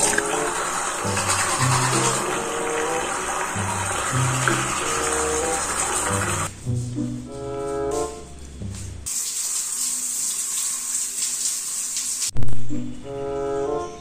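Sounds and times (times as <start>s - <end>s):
shower head spraying water: 0.0s - 6.5s, 8.6s - 12.4s
background music with brass: 1.2s - 9.0s, 12.7s - 14.0s.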